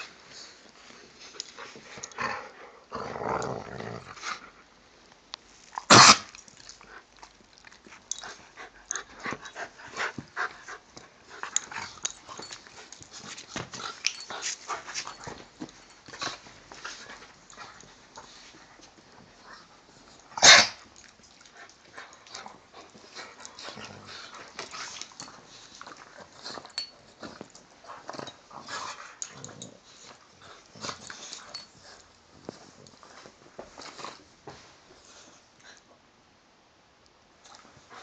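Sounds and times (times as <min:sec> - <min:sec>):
dogs snuffling and mouthing: 0:05.7 - 0:35.8.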